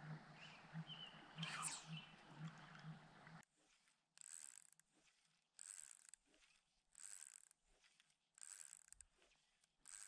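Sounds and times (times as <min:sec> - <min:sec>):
fishing reel ratcheting whirr: 0:04.2 - 0:04.8, 0:05.6 - 0:06.2, 0:06.9 - 0:07.5, 0:08.4 - 0:09.0.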